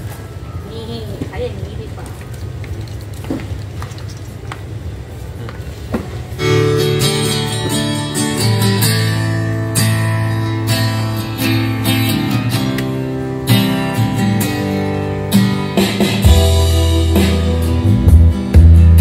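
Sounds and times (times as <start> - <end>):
guitar music through speakers: 6.4 - 19.0
deep bass line: 15.9 - 19.0.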